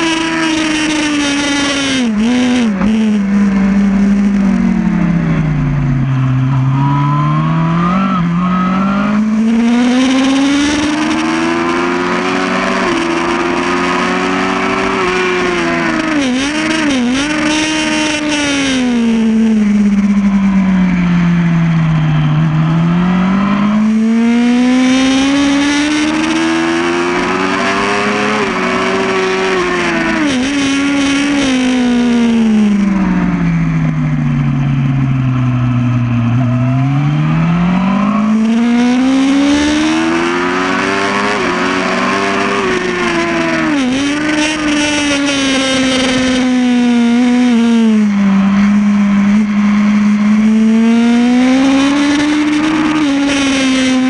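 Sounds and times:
motorcycle engine accelerating: 0:00.0 - 0:54.0.

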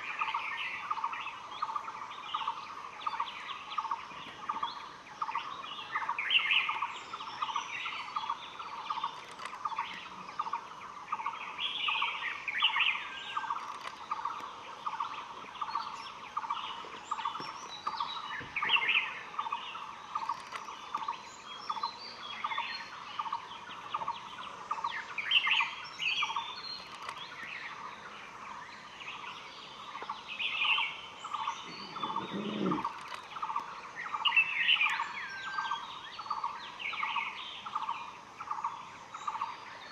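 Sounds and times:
higher birdsong phrases: 0:31.4 - 0:33.1.

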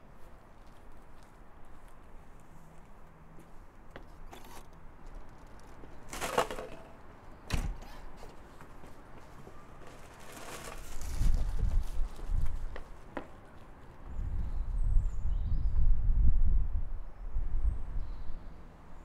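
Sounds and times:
door banging shut: 0:07.5 - 0:07.9.

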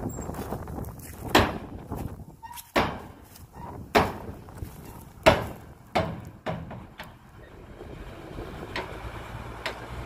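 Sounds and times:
heavy knocks: 0:01.3 - 0:01.8, 0:02.7 - 0:03.2, 0:03.8 - 0:04.4, 0:05.2 - 0:07.2.

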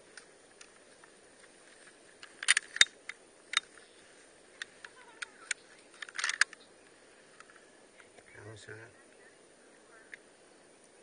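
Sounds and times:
rifle metallic clicks and rattles: 0:02.2 - 0:03.8, 0:04.6 - 0:06.6.

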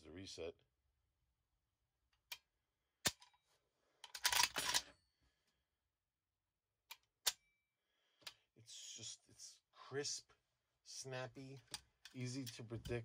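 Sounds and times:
rifle action clattering: 0:04.1 - 0:04.9.

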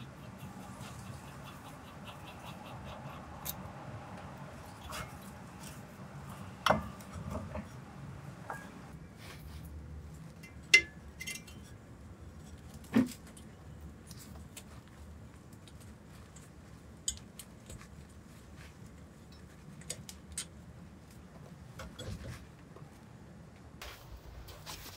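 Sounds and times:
metal tools clinking: 0:10.4 - 0:11.7.

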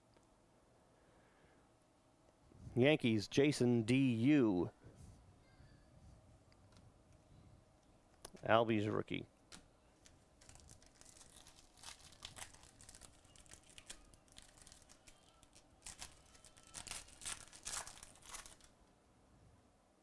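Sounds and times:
foil wrapper crinkling and tearing: 0:10.4 - 0:18.8.

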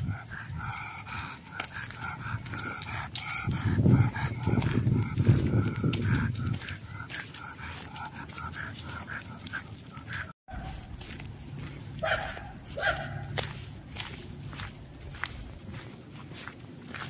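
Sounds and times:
dog panting: 0:00.0 - 0:10.4
footsteps on gravel: 0:01.1 - 0:17.0.

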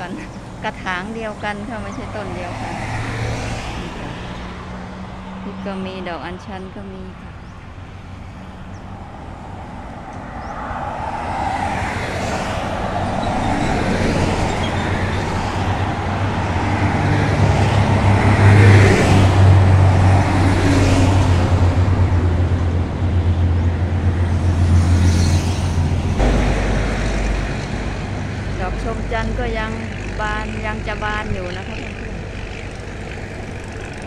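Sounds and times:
motor engine humming: 0:25.8 - 0:34.0.

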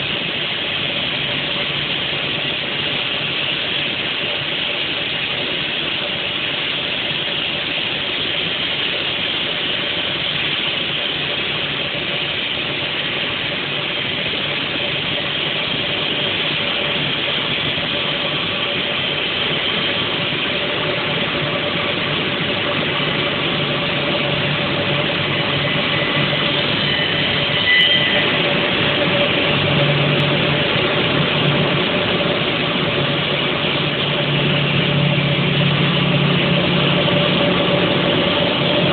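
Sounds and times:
motor hum: 0:10.8 - 0:38.9
saw blades cutting marble: 0:26.0 - 0:29.3.

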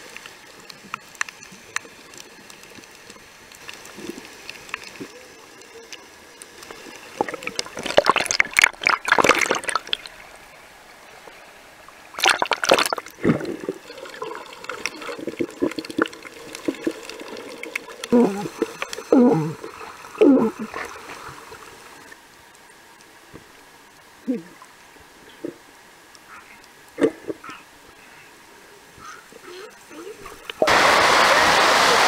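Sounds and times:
underwater gurgling: 0:00.0 - 0:22.6
water sloshing and splashing: 0:06.6 - 0:11.0, 0:11.9 - 0:22.3.

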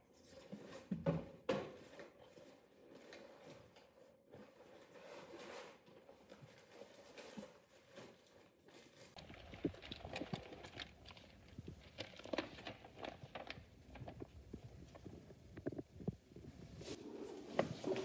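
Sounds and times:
paper rustling: 0:04.4 - 0:18.0.

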